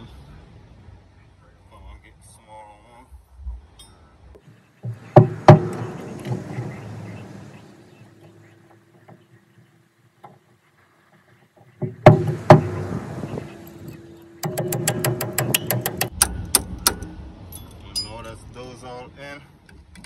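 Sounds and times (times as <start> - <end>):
soft metal rattling: 3.8 - 18.8
sharp metallic knocks: 4.4 - 18.4.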